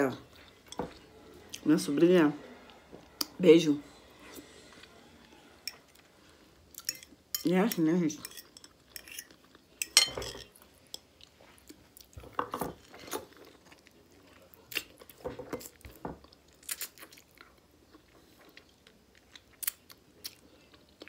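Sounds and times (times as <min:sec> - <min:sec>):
person chewing: 0:08.3 - 0:21.0.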